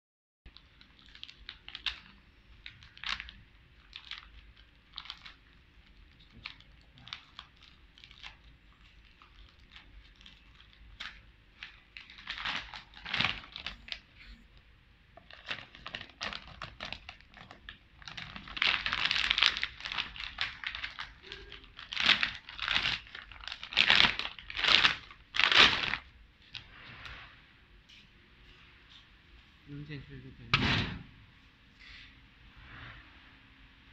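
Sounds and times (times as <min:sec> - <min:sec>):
plastic bag crinkling: 0:00.5 - 0:14.4, 0:15.2 - 0:26.8.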